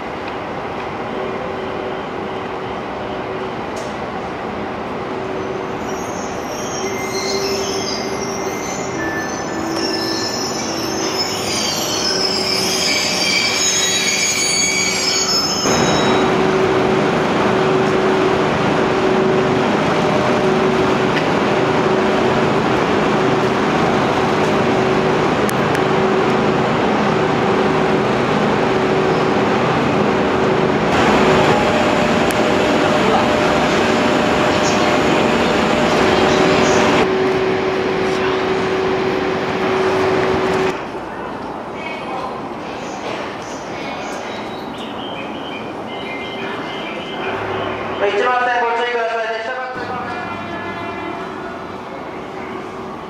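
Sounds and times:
train running noise with hum: 0.0 - 53.0
high-pitched wheel squeals: 5.8 - 16.3.

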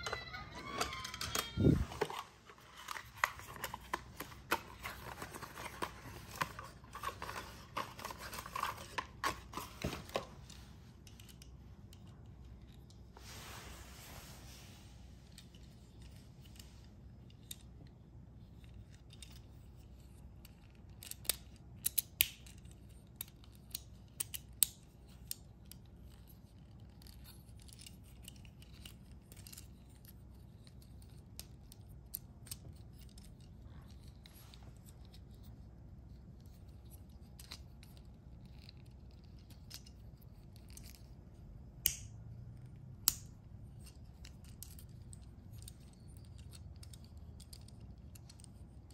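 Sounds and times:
faint low hum: 0.0 - 48.9
plastic toy parts clicking: 11.0 - 13.0, 18.5 - 35.5, 41.8 - 42.1, 43.0 - 48.9.

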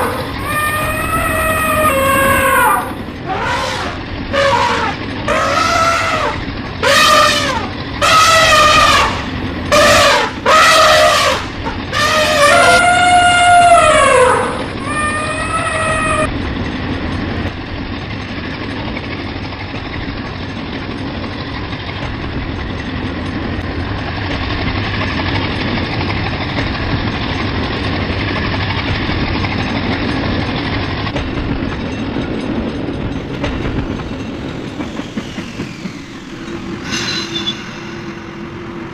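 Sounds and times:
train horn blast: 0.0 - 16.3
train rumbling on rails: 0.0 - 38.9.

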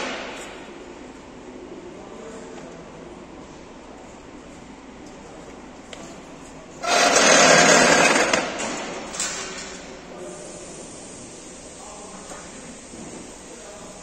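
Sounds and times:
pneumatic hissing rattling burst: 6.8 - 13.6.

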